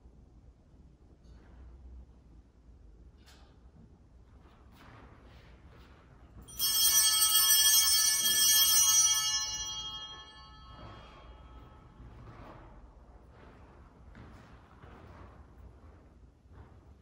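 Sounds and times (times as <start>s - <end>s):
altar bells ringing: 6.5s - 12.0s.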